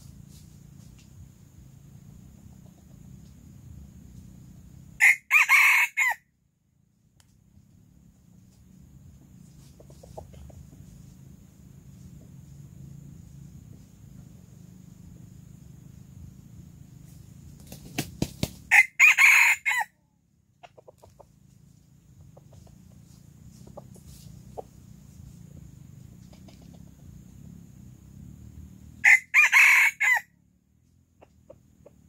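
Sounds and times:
rooster crowing: 0:05.0 - 0:06.2, 0:18.7 - 0:20.0, 0:29.0 - 0:30.3.

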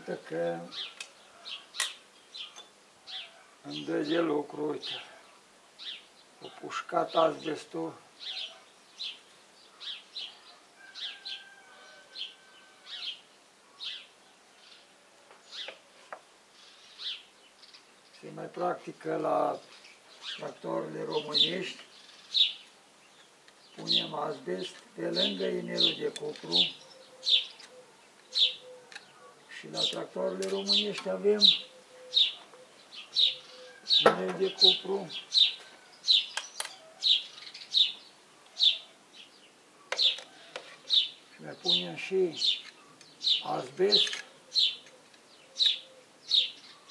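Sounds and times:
swallows chirping: 0:19.4 - 0:46.9.

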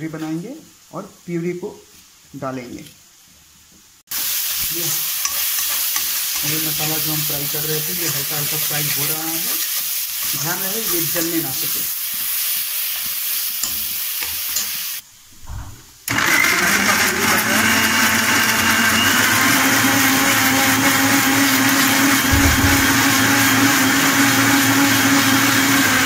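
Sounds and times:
spices sizzling in a pan: 0:02.9 - 0:15.0
mixer grinder motor whine: 0:16.1 - 0:26.0.

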